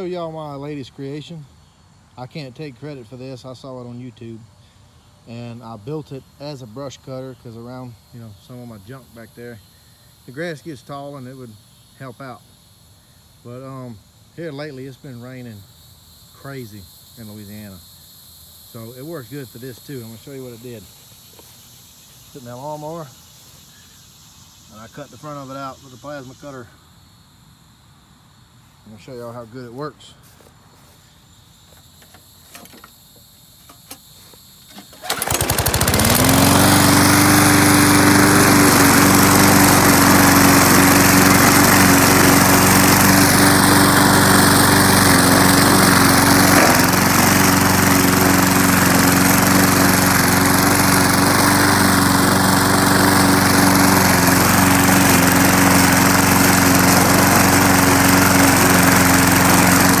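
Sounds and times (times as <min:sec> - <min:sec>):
lawnmower engine running: 0:34.7 - 1:00.0.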